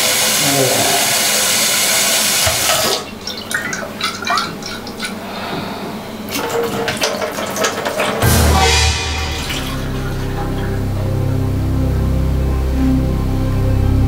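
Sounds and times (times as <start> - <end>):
tap water running into sink: 0.0 - 5.6, 6.3 - 10.8.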